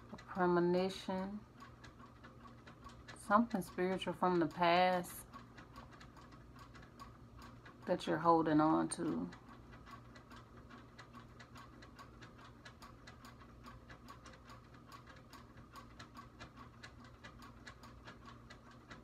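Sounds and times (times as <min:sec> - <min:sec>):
clock ticking: 0:00.0 - 0:19.0
low room hum: 0:00.0 - 0:19.0.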